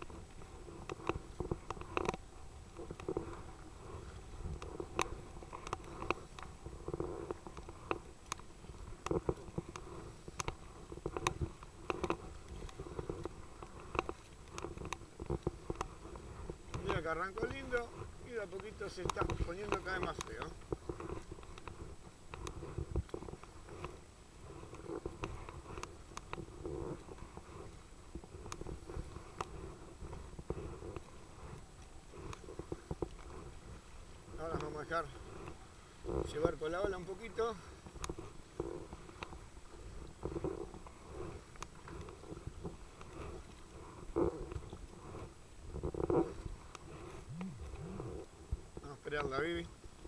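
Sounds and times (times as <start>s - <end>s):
waves slapping kayak hull: 0.0s - 50.0s
wind rumbling on microphone: 0.0s - 50.0s.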